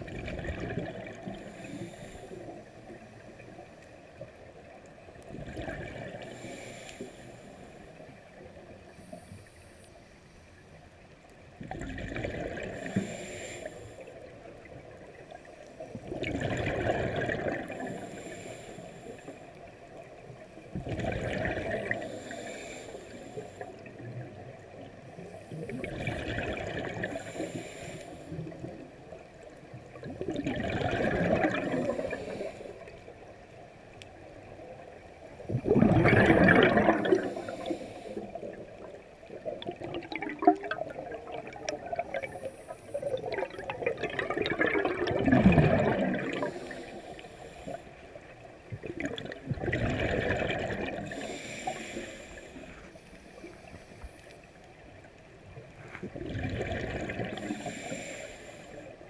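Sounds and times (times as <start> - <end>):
bubbling regulator exhale: 11.6 - 14.0, 16.0 - 19.4, 20.8 - 24.4, 25.2 - 28.8, 29.9 - 33.0, 35.4 - 47.9, 48.7 - 52.8, 56.0 - 58.9.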